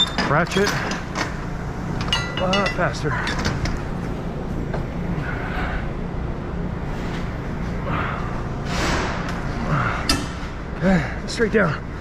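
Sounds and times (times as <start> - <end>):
vehicle engine humming: 0.3 - 12.0
steel chain clinking: 2.0 - 3.6.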